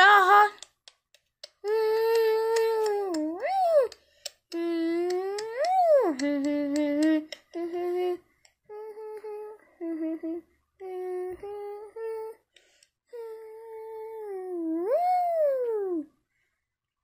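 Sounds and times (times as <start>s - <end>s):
person vocalizing held notes: 1.4s - 12.4s.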